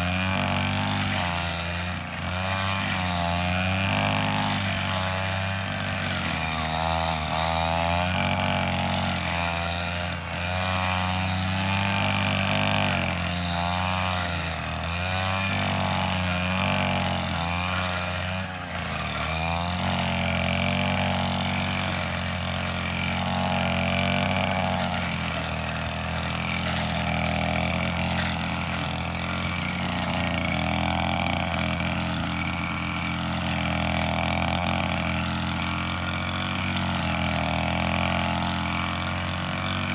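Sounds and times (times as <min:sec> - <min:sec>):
brush cutter engine cutting grass: 0:00.0 - 0:39.9.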